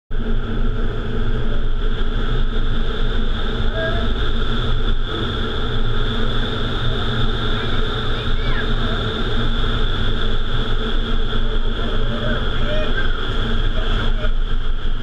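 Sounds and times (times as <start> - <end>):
wind tunnel air rushing: 0.2 - 15.0.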